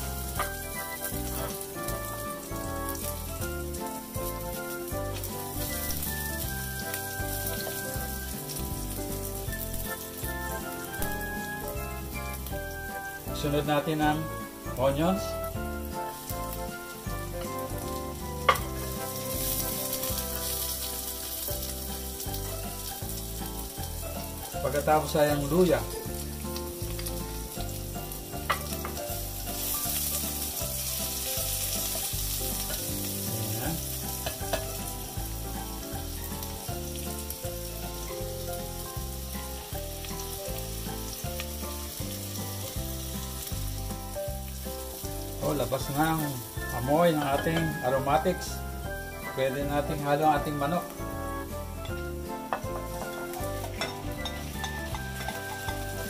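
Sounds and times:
background music with steady beat: 0.0 - 56.0
onion sizzling in oil: 0.0 - 56.0
spoon clacking against pot: 34.2 - 34.8, 52.5 - 56.0.

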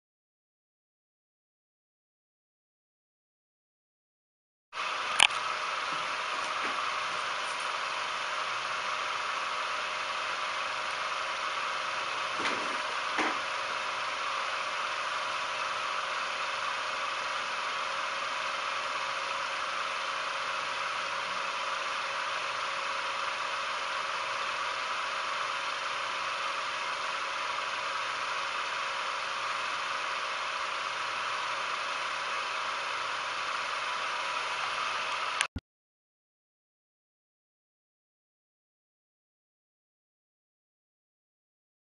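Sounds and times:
spinning disc motor whirring: 4.8 - 35.5.

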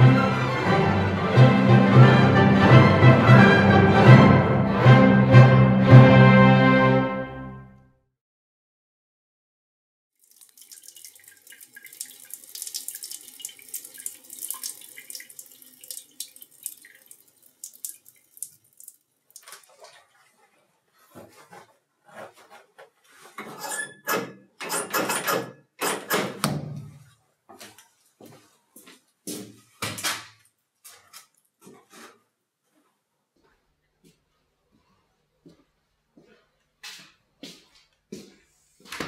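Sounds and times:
shower water running: 10.2 - 20.5.

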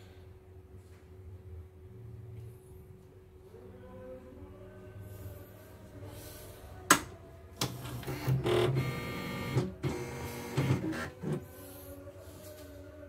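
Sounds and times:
embroidery machine motors whirring: 7.7 - 11.5.

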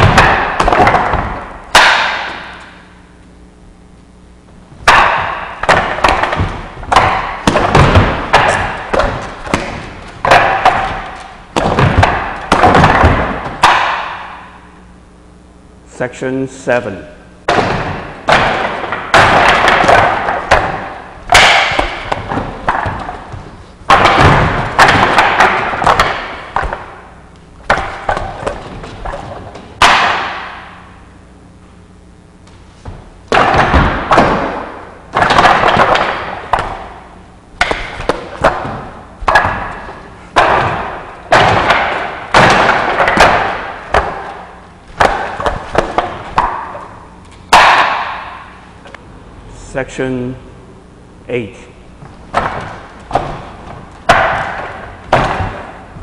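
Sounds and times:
strikes on wooden dummy: 0.0 - 2.8, 4.8 - 14.7, 17.5 - 30.9, 32.8 - 46.9, 47.5 - 48.6, 52.3 - 56.0.

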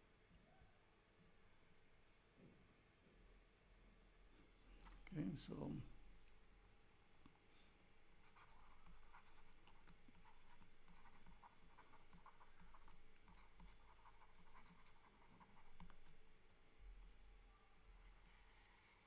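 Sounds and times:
stylus scratching on pen tablet: 8.2 - 16.2.

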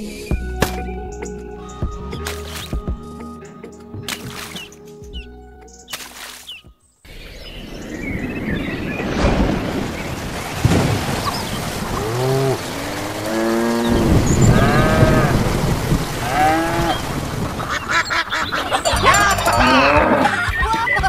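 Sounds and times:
rain falling: 7.6 - 20.2
farm animal calls: 11.9 - 15.4, 16.2 - 20.8.

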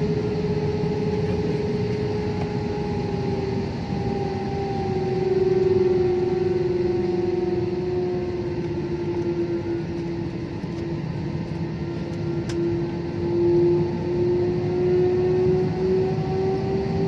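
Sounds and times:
jet engine drone in cabin: 0.0 - 17.0.

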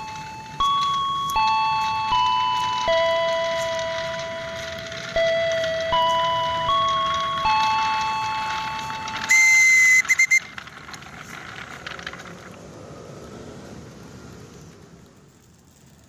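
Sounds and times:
station chime: 0.0 - 10.0
train rumble: 0.0 - 16.0
train whistle: 8.4 - 10.5.

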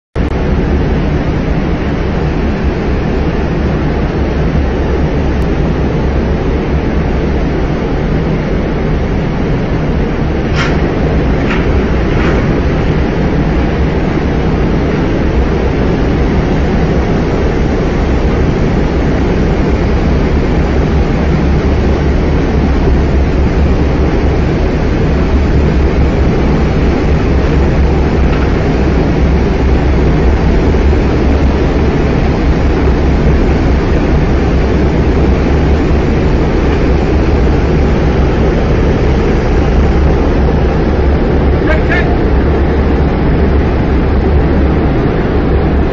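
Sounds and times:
loud low rumble with hiss: 0.2 - 45.9.

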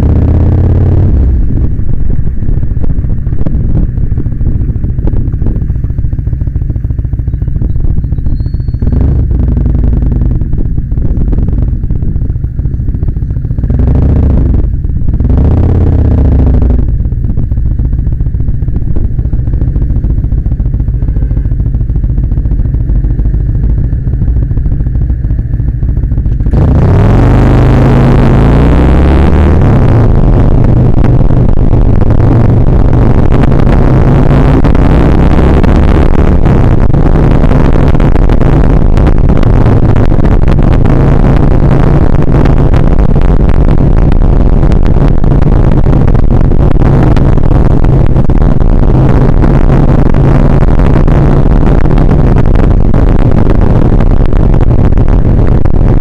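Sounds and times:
motorcycle engine pulling away: 0.0 - 43.2
wind rush on microphone: 0.0 - 56.0.

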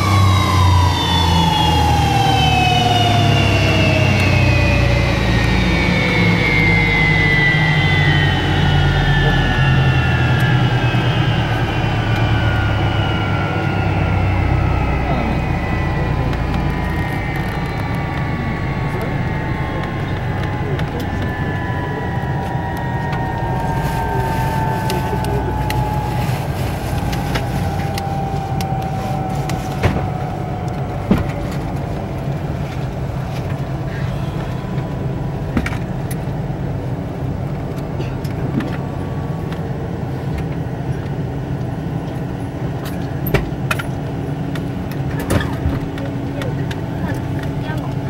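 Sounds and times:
jet engine whine winding down: 0.0 - 48.0
low engine rumble: 0.0 - 48.0
steady cabin hum: 0.0 - 48.0.

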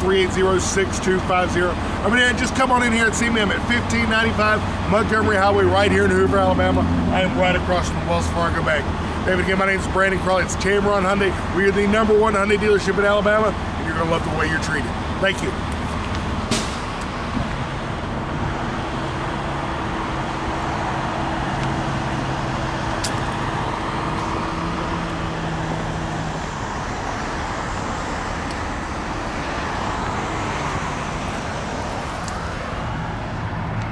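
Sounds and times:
road traffic noise: 0.0 - 33.9.

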